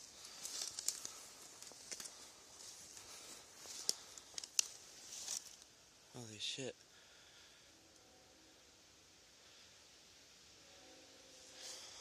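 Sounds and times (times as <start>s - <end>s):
footsteps in dry leaves: 0.0s - 5.6s.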